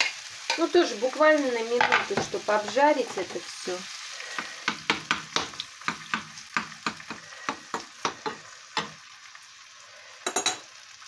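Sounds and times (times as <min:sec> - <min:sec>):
spoon scraping a pan: 0:00.0 - 0:00.9, 0:01.7 - 0:03.4, 0:04.2 - 0:09.0, 0:10.2 - 0:10.7
mushrooms sizzling in a frying pan: 0:00.0 - 0:11.0.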